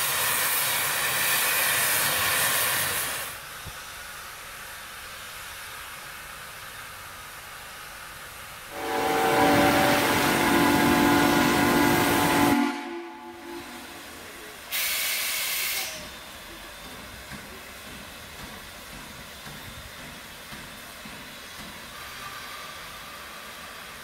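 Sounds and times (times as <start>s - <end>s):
sharp hiss of released steam: 0.0s - 24.0s
steam hissing: 0.0s - 24.0s
steam locomotive whistle: 8.7s - 16.2s.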